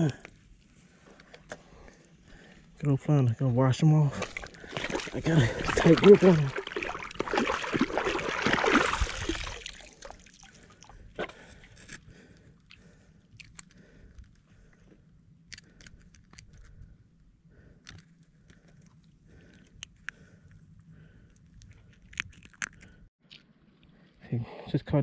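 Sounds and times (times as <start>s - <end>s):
water splashing and sloshing: 4.0s - 11.9s
crunches and clicks of handling fish: 9.9s - 24.0s.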